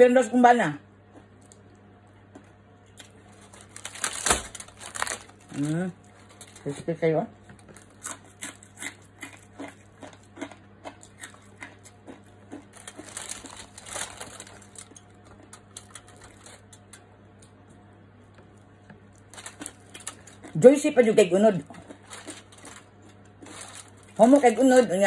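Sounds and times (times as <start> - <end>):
low steady hum: 0.0 - 25.0
crisp pork skin crackling: 3.0 - 6.9, 7.6 - 17.1, 19.1 - 20.9, 21.6 - 25.0
aluminium foil crinkling: 3.0 - 7.0, 12.7 - 17.0, 19.1 - 20.8, 21.7 - 25.0.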